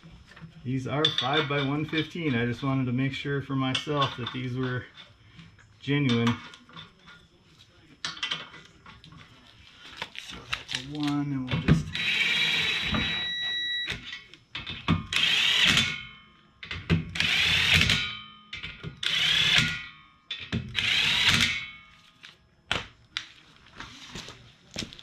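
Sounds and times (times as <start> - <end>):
impact gun spinning lug nuts: 20.7 - 21.6.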